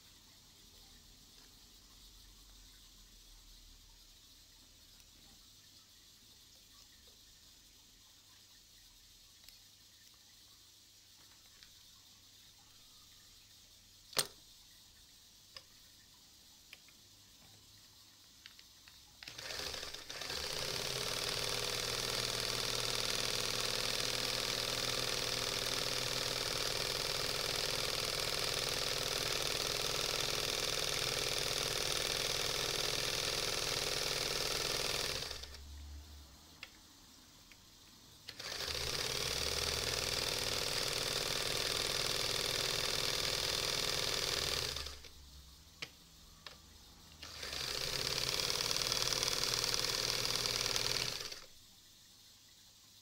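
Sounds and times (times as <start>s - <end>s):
sewing machine sewing: 19.2s - 35.7s, 38.3s - 45.2s, 47.2s - 51.6s.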